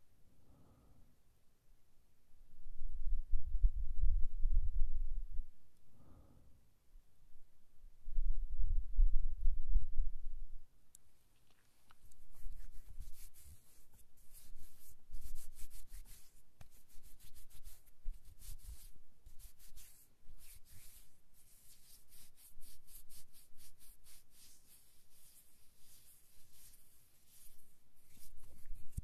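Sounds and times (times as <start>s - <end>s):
rubbing against microphone: 11.4s - 29.0s.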